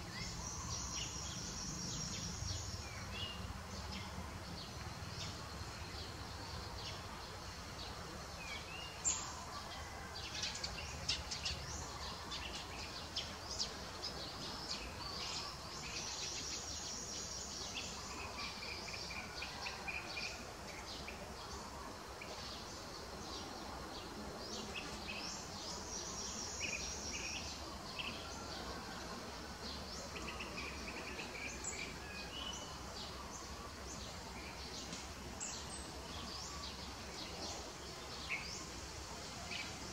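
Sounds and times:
small birds chirping: 0:10.5 - 0:39.9.

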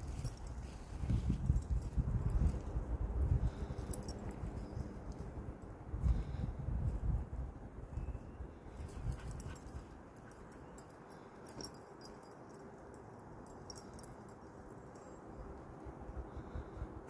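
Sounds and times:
distant road traffic hum: 0:00.0 - 0:17.0.

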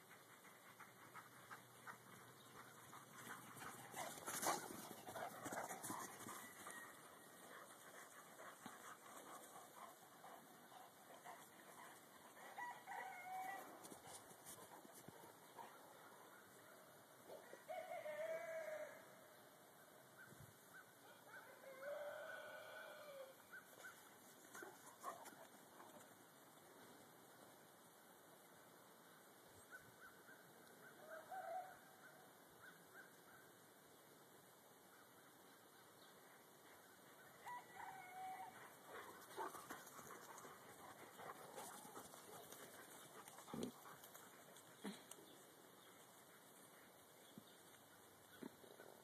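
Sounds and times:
dog howling faintly: 0:37.4 - 0:38.7.

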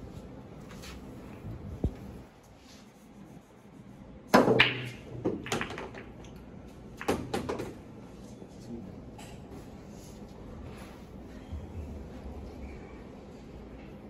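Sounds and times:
cue ball cracking into racked balls: 0:04.3 - 0:06.4, 0:07.0 - 0:07.8
pool balls clattering: 0:04.4 - 0:07.8.

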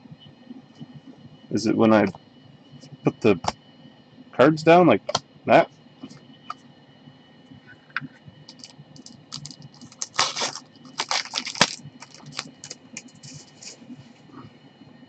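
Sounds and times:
cards rustling: 0:08.5 - 0:13.8.

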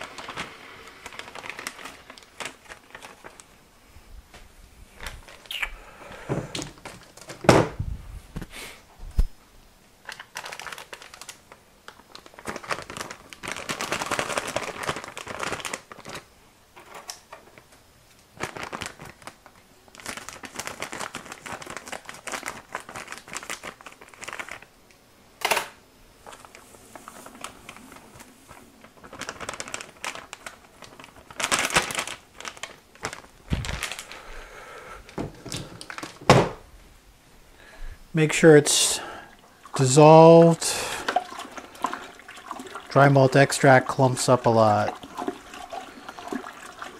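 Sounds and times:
bag crinkling and rustling: 0:00.0 - 0:03.6, 0:05.0 - 0:05.6, 0:06.3 - 0:07.5, 0:10.0 - 0:24.8, 0:26.1 - 0:36.7.

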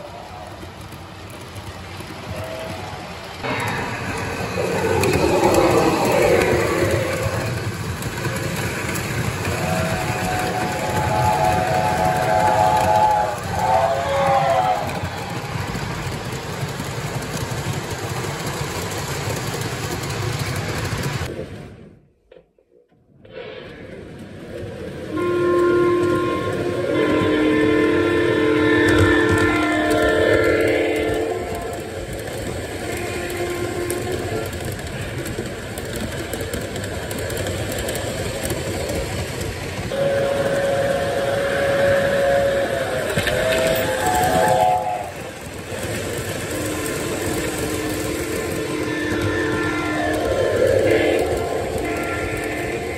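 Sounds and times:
model train wheels rattling on rails: 0:00.0 - 0:21.6, 0:28.0 - 0:52.9
train horn note: 0:09.5 - 0:15.2, 0:25.1 - 0:32.0, 0:32.8 - 0:34.5, 0:39.9 - 0:45.3, 0:46.5 - 0:52.9.

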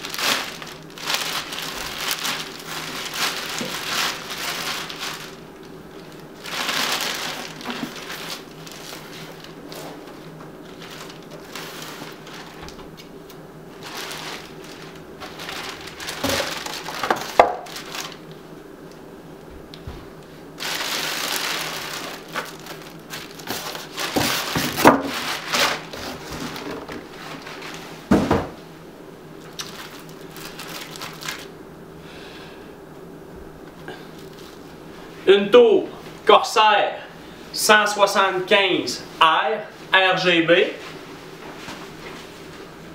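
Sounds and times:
polystyrene foam rubbing: 0:00.0 - 0:12.7, 0:13.7 - 0:18.3, 0:20.6 - 0:28.0
plastic bag crinkling: 0:00.0 - 0:18.4, 0:20.6 - 0:27.9, 0:29.4 - 0:31.6, 0:34.0 - 0:34.7.

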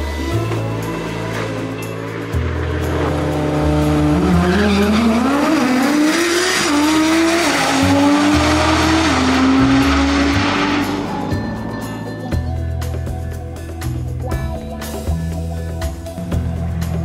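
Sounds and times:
car engine accelerating hard: 0:00.0 - 0:12.5.

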